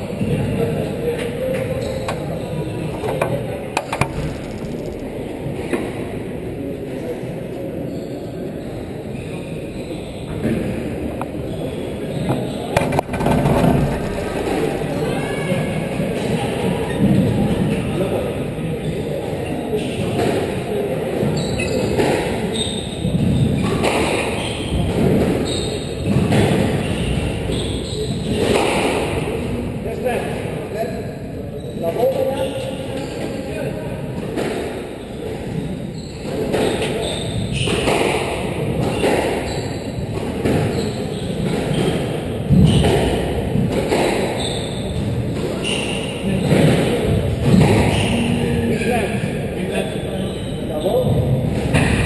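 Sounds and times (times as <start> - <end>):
ball thudding against walls: 3.1 - 5.2, 12.8 - 14.9
ball thudding off walls: 3.8 - 5.3
squash ball struck by rackets: 3.8 - 5.8.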